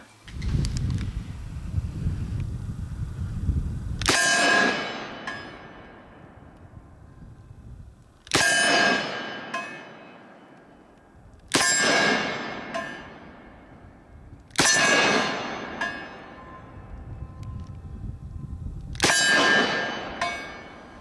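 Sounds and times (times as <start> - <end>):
revolver shots ringing: 11.6 - 16.8.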